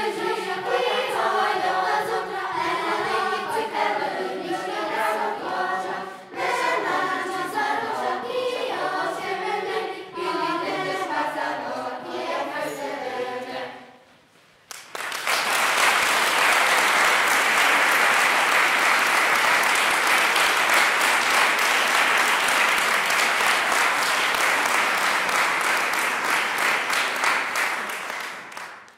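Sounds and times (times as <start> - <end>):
children's choir singing a cappella: 0.0 - 14.1
audience clapping: 14.6 - 28.9.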